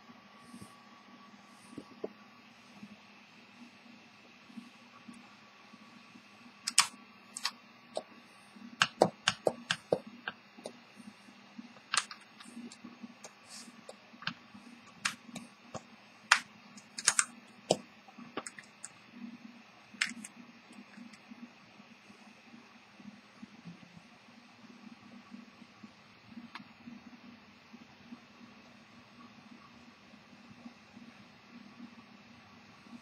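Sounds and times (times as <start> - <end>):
fingers clicking and tapping wooden box: 8.8 - 10.8, 11.9 - 17.8, 20.0 - 20.3.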